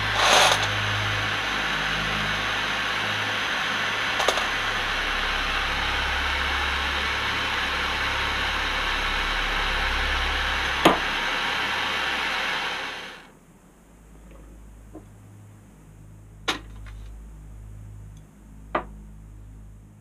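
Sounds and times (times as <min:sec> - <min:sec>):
torch flame hissing: 0:00.0 - 0:13.3.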